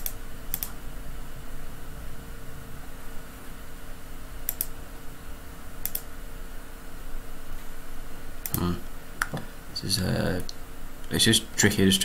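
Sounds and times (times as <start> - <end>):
mouse clicks: 0.0 - 0.8, 4.4 - 4.8, 5.8 - 6.1
steady hum: 0.0 - 12.0.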